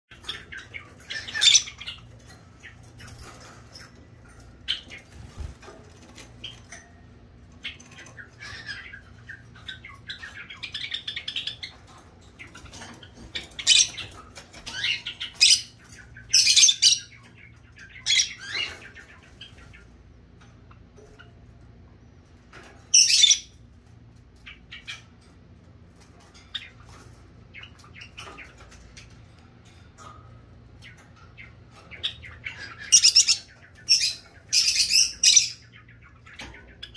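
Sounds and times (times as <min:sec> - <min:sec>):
lovebird chirping and squawking: 0:00.1 - 0:06.8, 0:07.6 - 0:19.9, 0:22.9 - 0:23.6, 0:30.8 - 0:36.9.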